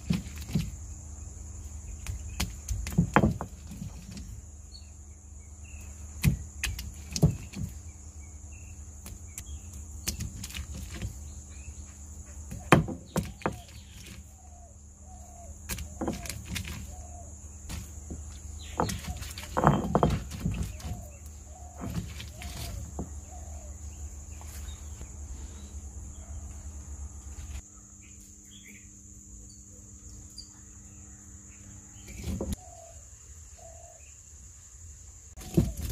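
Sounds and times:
stone roller knocking on stone: 0:02.4 - 0:04.2, 0:06.2 - 0:07.8, 0:12.5 - 0:14.2, 0:15.7 - 0:16.8, 0:17.7 - 0:21.2, 0:21.8 - 0:23.2.

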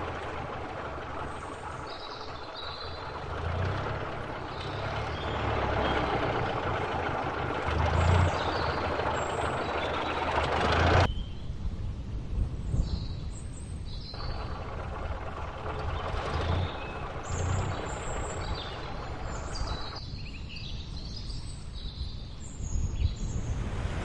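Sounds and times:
old car engine rumbling: 0:00.0 - 0:11.1, 0:13.3 - 0:20.1.

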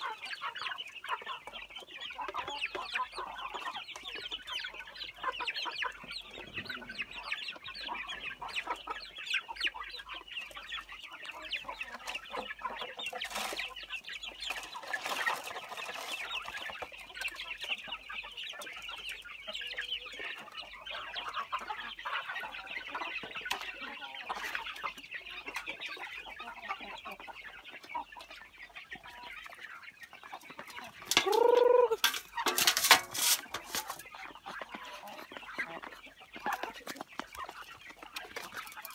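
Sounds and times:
chickens clucking: 0:00.0 - 0:38.9
loud call falling in pitch: 0:31.2 - 0:32.0.

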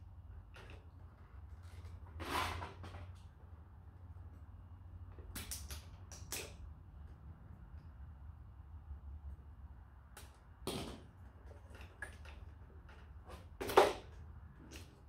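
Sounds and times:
parts scraping: 0:00.3 - 0:03.3.

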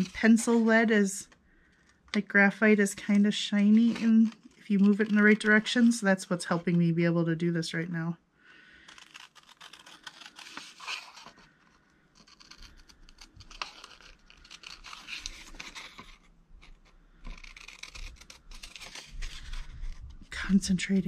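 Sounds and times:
scissors cutting paper: 0:00.0 - 0:00.8, 0:03.0 - 0:06.8, 0:08.8 - 0:11.4, 0:12.2 - 0:19.9.

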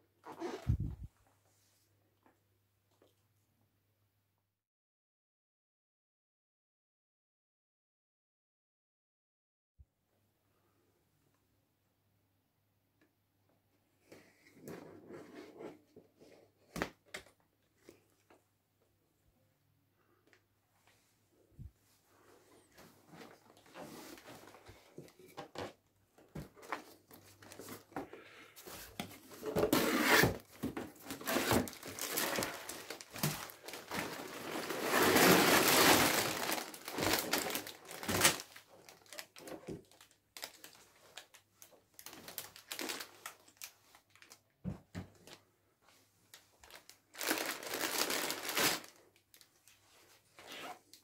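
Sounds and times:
plastic bags crinkling: 0:30.7 - 0:44.4, 0:46.6 - 0:49.7.

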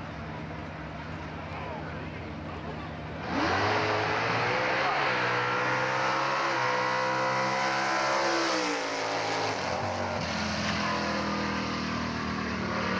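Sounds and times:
lower steady engine note: 0:00.0 - 0:07.5
drag car engine at full throttle: 0:00.0 - 0:12.9.

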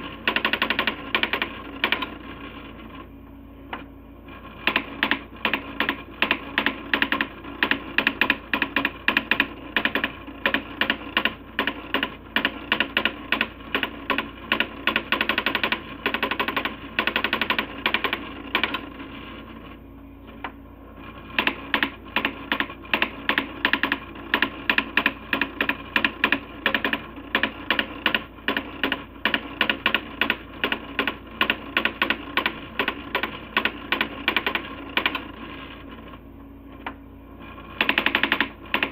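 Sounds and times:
daisy wheel printer clicking: 0:37.8 - 0:38.9.

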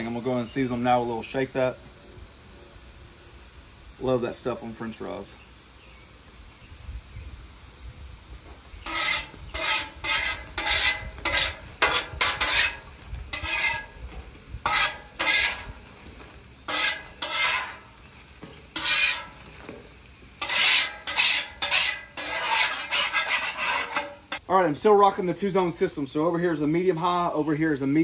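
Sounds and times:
fries sizzling: 0:00.0 - 0:28.0
metal spatula scraping griddle: 0:08.8 - 0:24.4.

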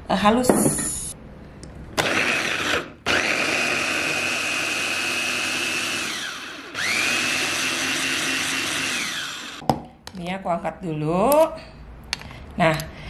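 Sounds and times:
electric food chopper whining: 0:02.0 - 0:09.6.

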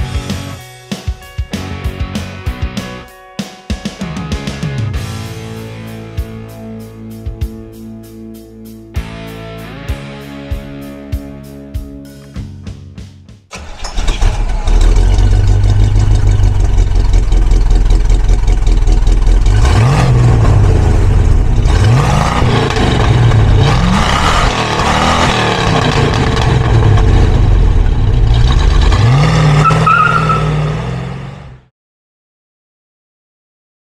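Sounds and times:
car engine revving: 0:13.5 - 0:31.7
car engine starting and idling: 0:13.5 - 0:31.7.

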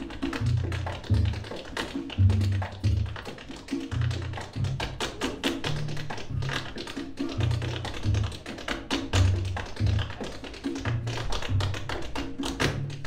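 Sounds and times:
plucked upright bass: 0:00.0 - 0:13.0.

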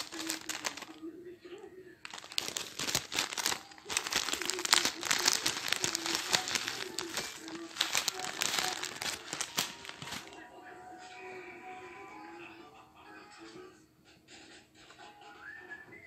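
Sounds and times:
material crinkling and rustling: 0:00.0 - 0:01.0, 0:02.0 - 0:10.4.

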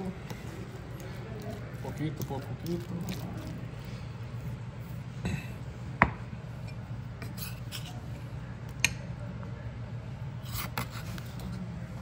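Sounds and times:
spoon scraping glass bowl: 0:07.2 - 0:08.0.

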